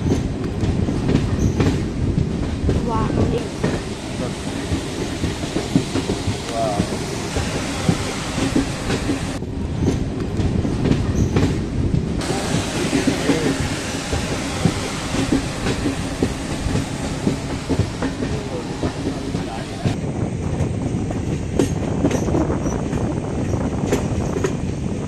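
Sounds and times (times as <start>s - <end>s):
wheels clacking over rail joints: 0.0s - 20.0s
train rumble and rattle: 0.0s - 25.0s.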